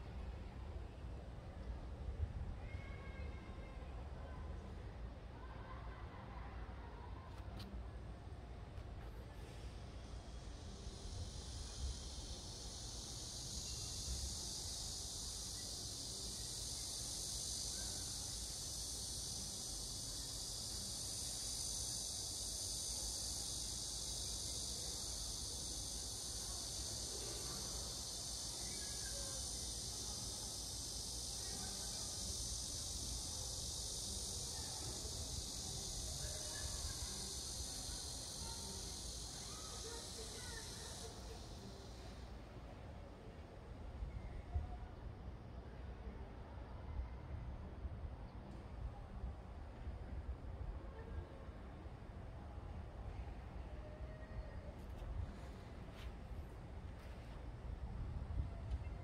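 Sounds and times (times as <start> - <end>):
insects trilling: 10.1 - 43.4.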